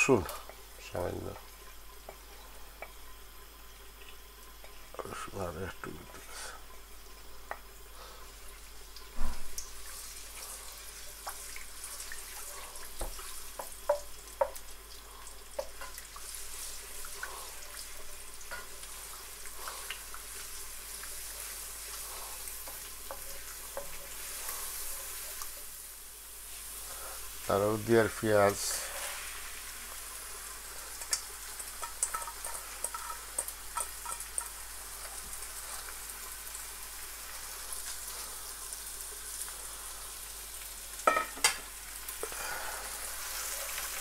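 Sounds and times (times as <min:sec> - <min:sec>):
garlic sizzling in hot oil: 0:00.0 - 0:44.0
wooden spoon knocking against pan: 0:13.0 - 0:14.6.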